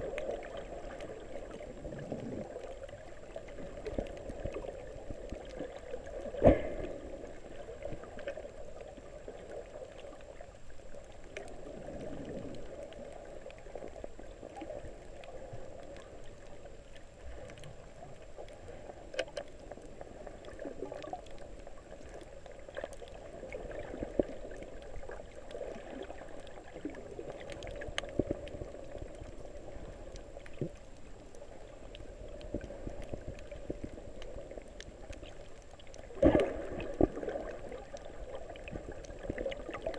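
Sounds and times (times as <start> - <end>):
underwater water wash: 0.0 - 39.9
small clicks: 18.4 - 19.9.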